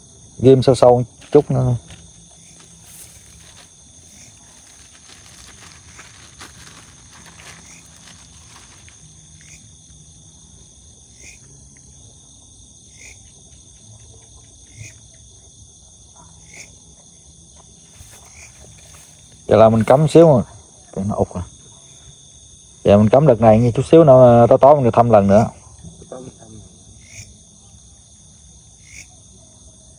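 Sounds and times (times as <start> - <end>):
insects trilling: 0.0 - 29.9.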